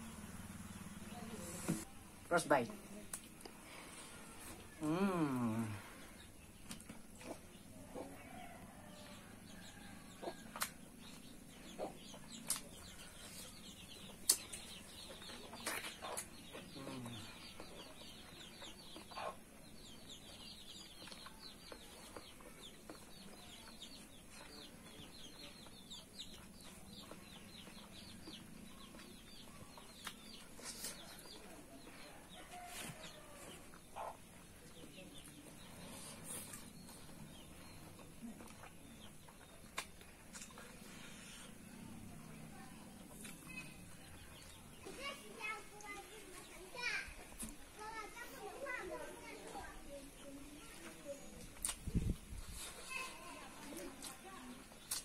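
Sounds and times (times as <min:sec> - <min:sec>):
person chewing food: 0:09.6 - 0:19.4, 0:20.8 - 0:23.6, 0:35.7 - 0:42.2
wet mouth smacks: 0:39.7 - 0:40.6.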